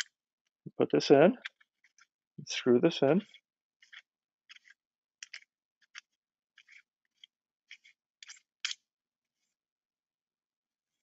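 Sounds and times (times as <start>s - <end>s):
scratchy clicks of parts screwing: 1.4s - 2.2s, 3.2s - 8.9s.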